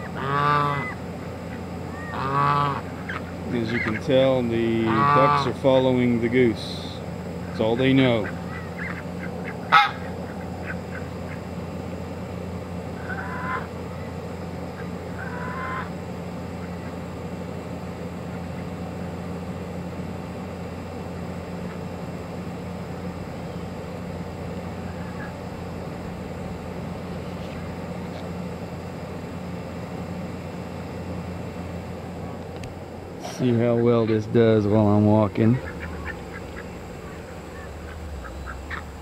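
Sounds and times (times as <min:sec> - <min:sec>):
faint bird calls: 0:00.0 - 0:05.6, 0:07.4 - 0:11.6, 0:12.9 - 0:17.1, 0:24.7 - 0:25.6, 0:35.4 - 0:39.0
goose honking: 0:00.0 - 0:05.7, 0:07.5 - 0:11.5, 0:13.0 - 0:13.7, 0:14.8 - 0:16.0, 0:35.2 - 0:39.0
steady low hum: 0:00.0 - 0:39.0.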